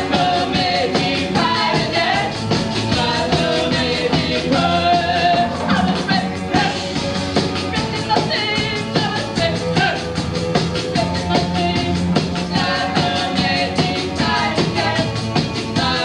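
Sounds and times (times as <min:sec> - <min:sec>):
live rock band playing: 0:00.0 - 0:15.8.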